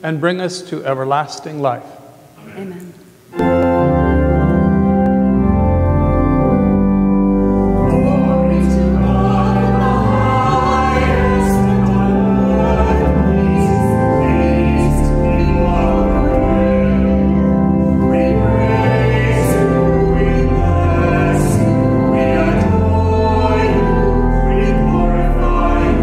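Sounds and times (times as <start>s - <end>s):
church organ chords: 3.3s - 26.0s.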